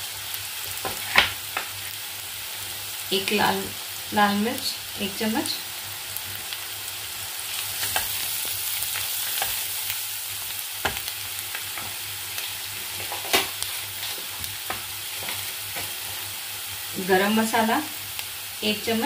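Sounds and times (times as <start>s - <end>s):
onions sizzling in oil: 0.0s - 19.0s
spatula scraping a pan: 11.7s - 16.3s.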